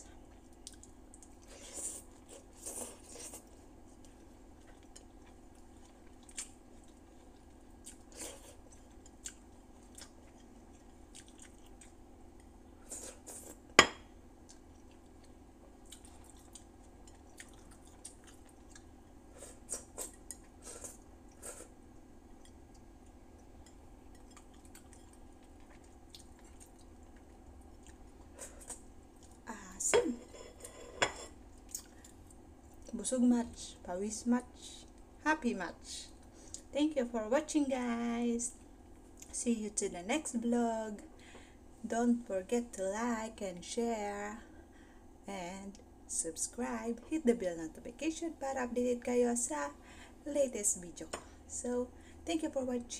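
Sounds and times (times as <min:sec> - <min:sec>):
low steady hum: 0:00.0 - 0:52.9
chewing and mouth sounds: 0:00.2 - 0:13.6, 0:14.4 - 0:19.0, 0:22.4 - 0:29.4, 0:31.5 - 0:32.9.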